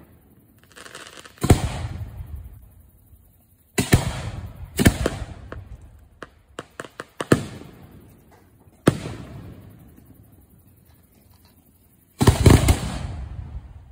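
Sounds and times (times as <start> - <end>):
sharp firework pops: 0.7 - 2.4, 3.8 - 10.0, 12.2 - 13.6.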